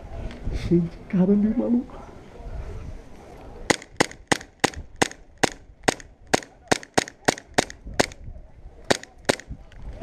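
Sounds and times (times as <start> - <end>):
airsoft pistol shots: 3.7 - 8.2, 8.9 - 9.5.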